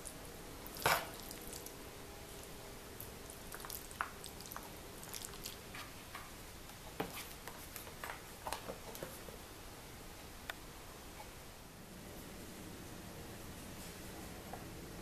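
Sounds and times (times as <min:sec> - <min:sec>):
wet squishes: 0:00.7 - 0:01.8, 0:03.2 - 0:05.6.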